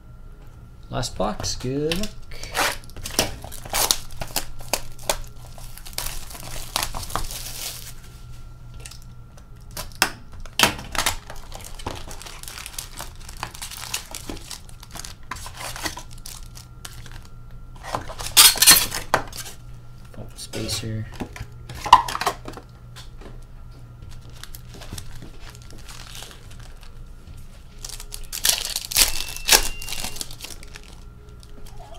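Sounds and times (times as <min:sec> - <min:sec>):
card packs rustling: 0:01.0 - 0:22.7, 0:24.1 - 0:31.9
plastic wrap crinkling and tearing: 0:01.9 - 0:08.1, 0:10.9 - 0:17.3, 0:24.1 - 0:31.9.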